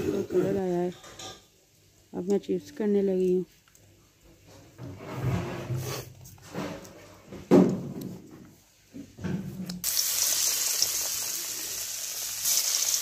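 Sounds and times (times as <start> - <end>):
slices deep-frying in hot oil: 9.7 - 13.0.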